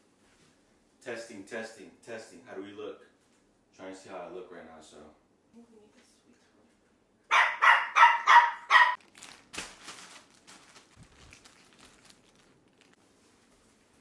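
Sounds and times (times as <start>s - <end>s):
small dog barking: 7.3s - 9.0s.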